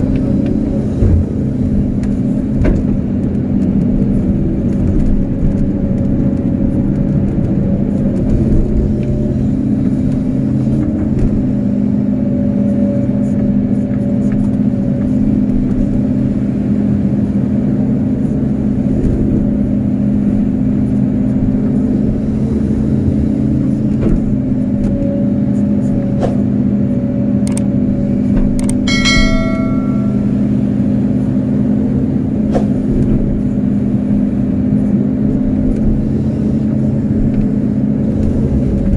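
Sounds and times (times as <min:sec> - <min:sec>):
excavator diesel engine running: 0:00.0 - 0:38.9
high ringing tone: 0:28.9 - 0:30.9.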